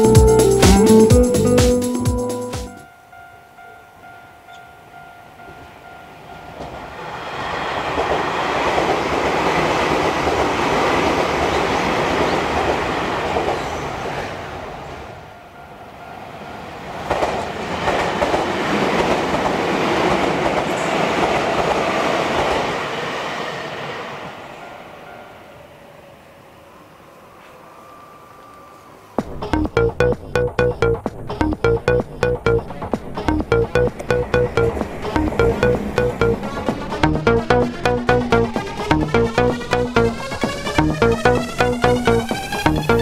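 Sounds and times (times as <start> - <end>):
level crossing warning bell: 2.6 - 6.9, 29.5 - 43.0
electric trains passing: 2.7 - 29.5, 32.6 - 43.0.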